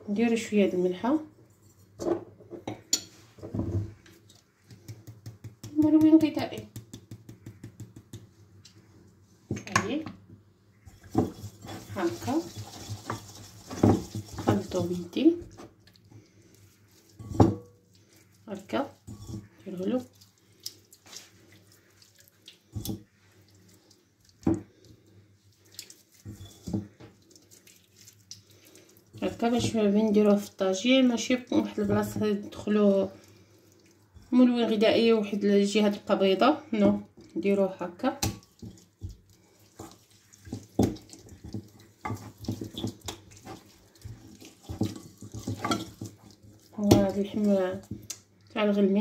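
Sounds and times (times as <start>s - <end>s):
hand squelching through marinade: 10.9s - 29.6s, 38.4s - 48.4s.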